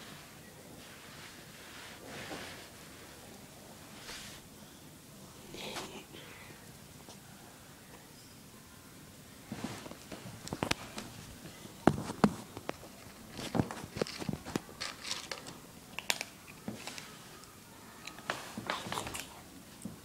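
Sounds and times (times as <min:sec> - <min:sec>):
kitten crunching dry kibble: 0:12.0 - 0:17.1.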